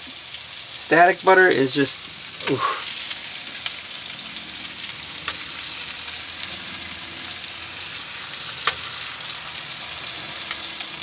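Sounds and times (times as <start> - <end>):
food sizzling in a pan: 0.0 - 11.0
sharp pops of frying fat: 5.2 - 5.6, 8.6 - 9.0.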